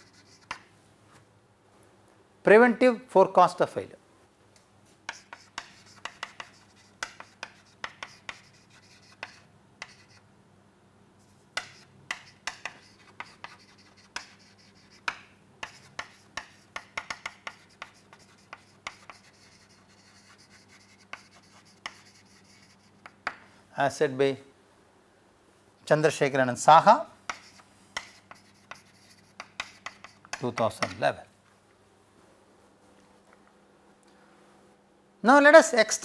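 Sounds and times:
chalk tapping and scratching on board: 0:00.0 - 0:00.7, 0:05.0 - 0:10.2, 0:11.2 - 0:23.5, 0:27.2 - 0:31.1.

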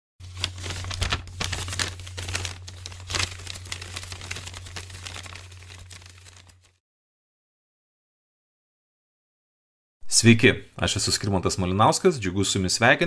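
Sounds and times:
dense crackling static noise: 0:00.2 - 0:06.7.

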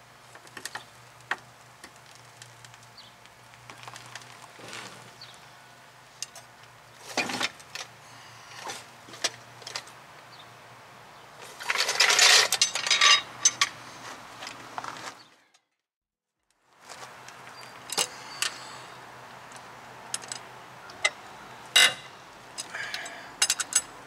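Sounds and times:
jack scraping over gravel: 0:00.3 - 0:05.5, 0:06.2 - 0:10.0, 0:11.4 - 0:15.3
metallic clicks and clanks: 0:21.8 - 0:23.9.

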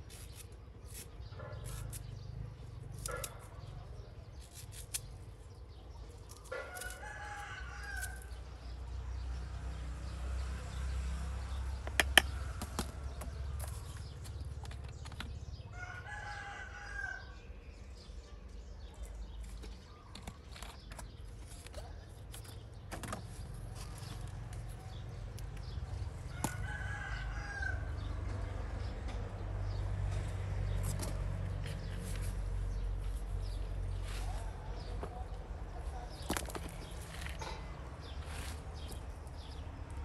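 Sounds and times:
rooster crowing: 0:15.7 - 0:17.4, 0:26.3 - 0:28.0.

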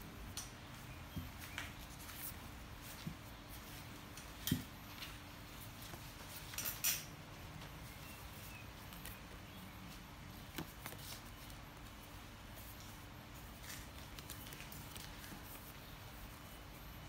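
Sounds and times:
faint steady hum: 0:00.0 - 0:17.0
paper taps and rustles: 0:10.3 - 0:12.0.

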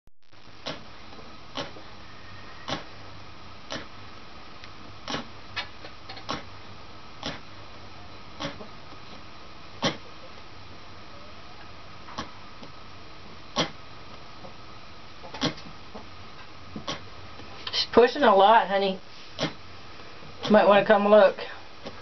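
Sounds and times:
faint high tone: 0:11.0 - 0:11.8.

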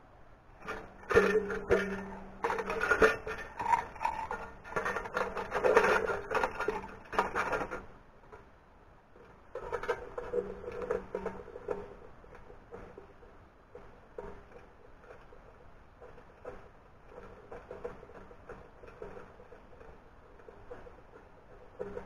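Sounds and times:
tin cans clattering and scraping: 0:00.6 - 0:07.9.

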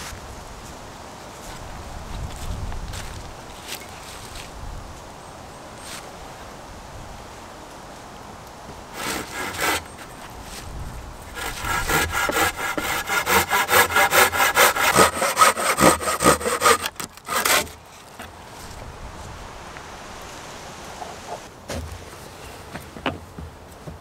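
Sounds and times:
hand saw cutting wood: 0:09.0 - 0:10.0, 0:11.3 - 0:17.8.

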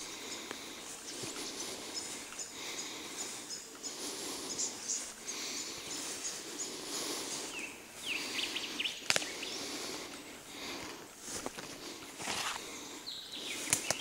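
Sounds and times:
footsteps in long grass: 0:00.0 - 0:14.0
bird chirps: 0:00.3 - 0:09.6, 0:13.0 - 0:14.0.

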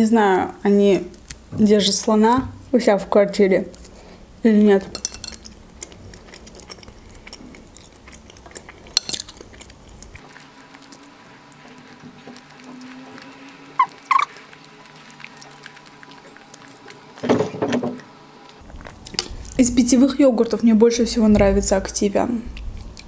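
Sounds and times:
chewing dried fish: 0:05.2 - 0:17.3, 0:18.4 - 0:19.6, 0:22.5 - 0:23.0
short squeaky chirps: 0:13.8 - 0:14.4.

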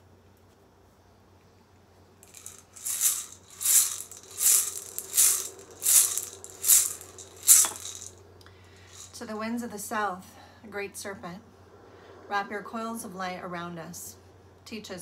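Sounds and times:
handheld rattle shaking: 0:02.2 - 0:08.2, 0:08.8 - 0:09.2.

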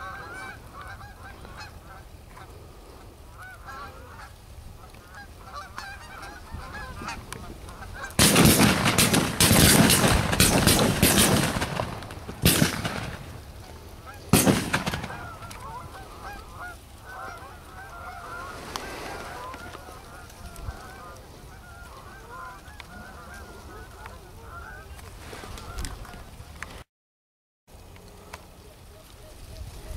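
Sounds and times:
geese honking: 0:00.0 - 0:26.3
shotgun blasts: 0:08.2 - 0:13.4, 0:14.3 - 0:15.6.

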